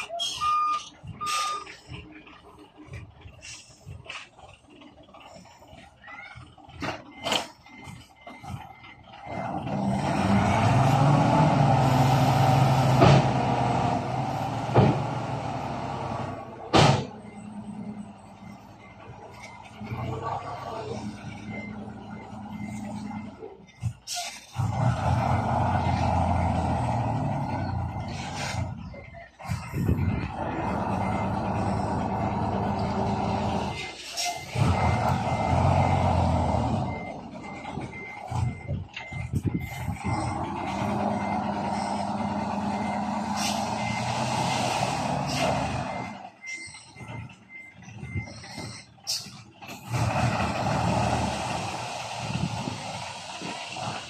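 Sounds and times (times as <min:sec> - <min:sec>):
diesel truck engine revving: 0:00.0 - 0:54.0
backup alarm beeping: 0:05.2 - 0:10.7, 0:17.1 - 0:24.1, 0:25.3 - 0:44.2, 0:45.8 - 0:49.4.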